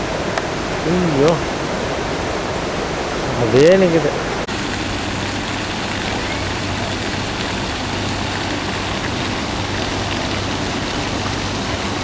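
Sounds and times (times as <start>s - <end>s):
water rushing over weir: 0.0s - 12.0s
low hum: 4.2s - 12.0s.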